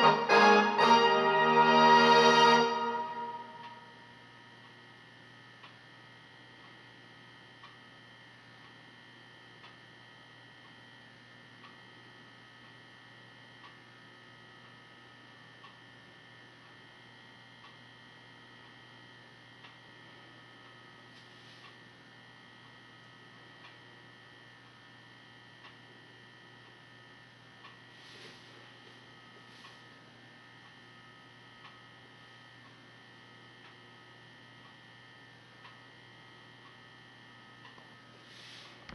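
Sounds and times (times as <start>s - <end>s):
electrical hum: 0.0s - 38.9s
soft tick: 5.6s - 5.8s, 7.6s - 7.8s, 9.6s - 9.8s, 13.6s - 13.8s, 15.6s - 15.8s, 19.6s - 19.8s, 23.6s - 23.8s, 25.6s - 25.8s, 27.6s - 27.8s, 31.6s - 31.8s.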